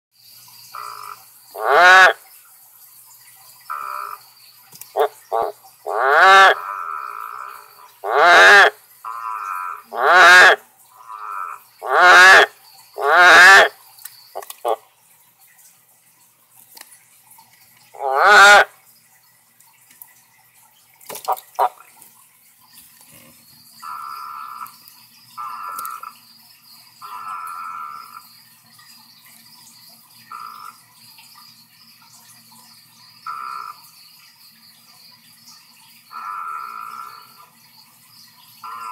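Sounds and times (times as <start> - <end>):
frog croaking: 0.6 - 2.2, 3.6 - 14.9, 17.9 - 18.8, 21.1 - 21.9, 23.1 - 26.3, 27.0 - 28.4, 30.3 - 30.8, 33.2 - 34.2, 36.0 - 37.5, 38.6 - 38.9
frog clucks: 0.7 - 2.2, 3.7 - 4.2, 4.8 - 14.8, 17.9 - 18.8, 21.1 - 21.9, 23.1 - 24.8, 25.4 - 26.2, 27.0 - 28.3, 30.3 - 30.8, 33.2 - 33.8, 36.1 - 37.4, 38.6 - 38.9.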